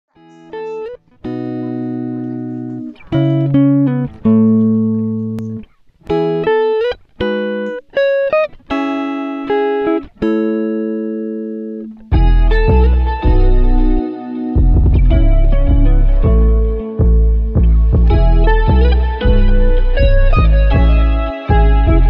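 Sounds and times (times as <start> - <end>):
guitar plucked notes and chords: 0.1 - 22.0
deep bass: 12.1 - 14.0, 14.6 - 22.0.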